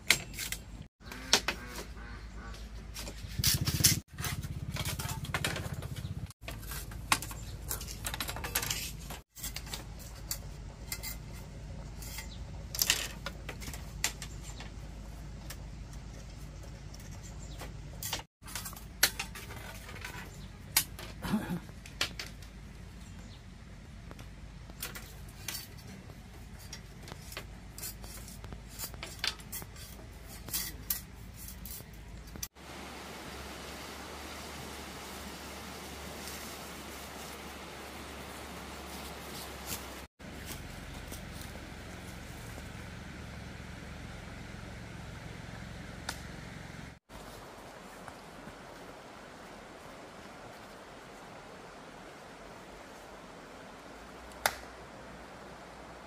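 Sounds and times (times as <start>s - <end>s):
blade scraping bamboo: 0.1s - 21.0s, 24.8s - 32.5s, 36.0s - 43.4s
bamboo clicks and taps: 20.7s - 22.6s, 54.3s - 54.7s.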